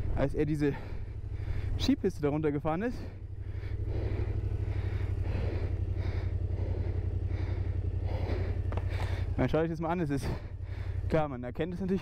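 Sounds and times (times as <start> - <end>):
motorcycle engine running at low revs: 0.0 - 12.0
tyres crunching over gravel: 3.8 - 12.0.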